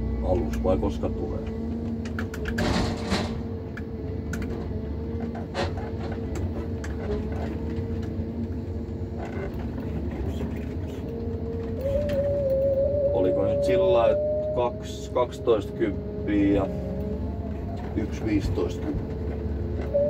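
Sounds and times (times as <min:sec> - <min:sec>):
knocks and clunks: 0:01.3 - 0:12.8, 0:16.5 - 0:20.0
forestry machine hydraulic whine: 0:05.0 - 0:20.0.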